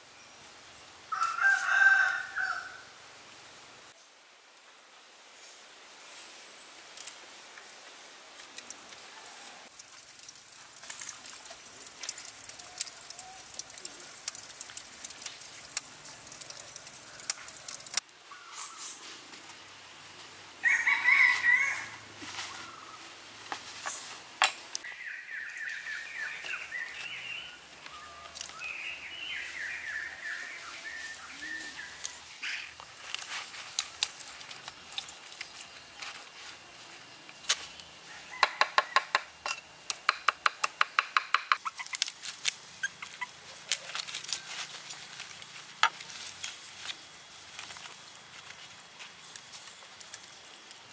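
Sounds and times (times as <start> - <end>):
rooster crowing: 1.1 - 2.9, 20.6 - 22.9, 38.0 - 39.2.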